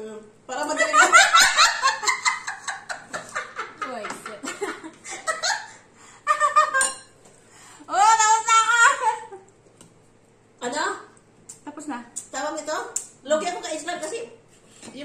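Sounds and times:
women laughing: 0:00.5 - 0:06.9.

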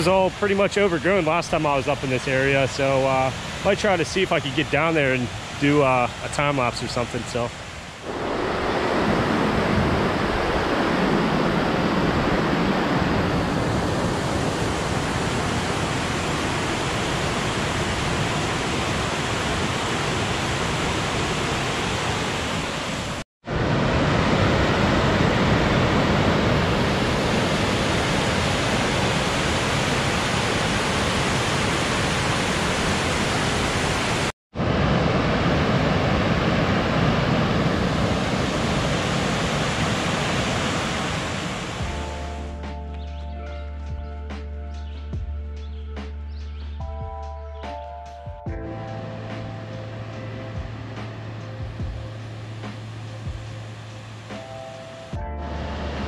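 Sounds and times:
water rushing over dam: 0:00.0 - 0:42.5.

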